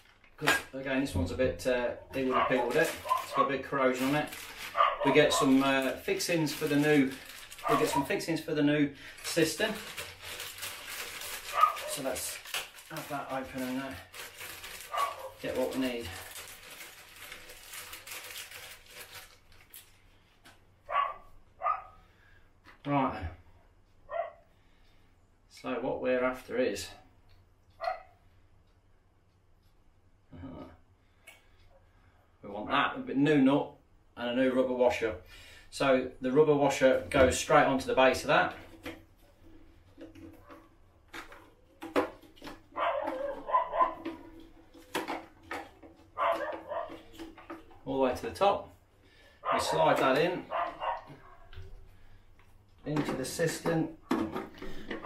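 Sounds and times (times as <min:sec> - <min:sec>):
plastic bag crinkling: 0:00.0 - 0:00.8, 0:02.2 - 0:20.4, 0:37.0 - 0:53.4
dog barking: 0:02.3 - 0:03.5, 0:04.7 - 0:05.4, 0:07.6 - 0:08.1, 0:11.5 - 0:12.0, 0:14.9 - 0:15.4, 0:20.9 - 0:22.0, 0:24.1 - 0:24.4, 0:27.8 - 0:28.2, 0:42.8 - 0:44.0, 0:46.2 - 0:47.0, 0:49.4 - 0:49.9, 0:50.5 - 0:51.5.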